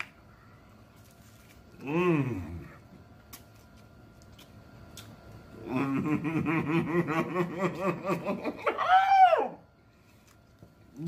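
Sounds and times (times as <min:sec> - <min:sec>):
man humming with closed lips: 0:01.8 - 0:02.8.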